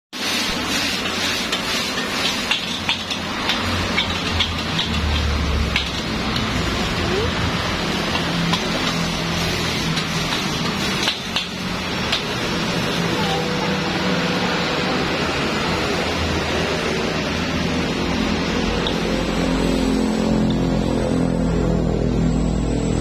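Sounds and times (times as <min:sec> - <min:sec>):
frying sizzle: 0:00.1 - 0:23.0
metal spatula scraping wok: 0:00.2 - 0:07.0, 0:07.6 - 0:14.4.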